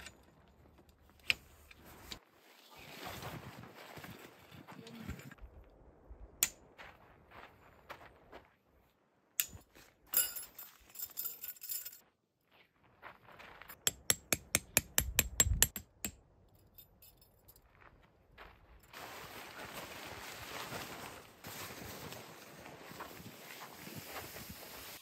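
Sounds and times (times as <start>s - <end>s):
metal tent poles clicking and rattling: 0.0s - 2.2s, 9.4s - 12.0s.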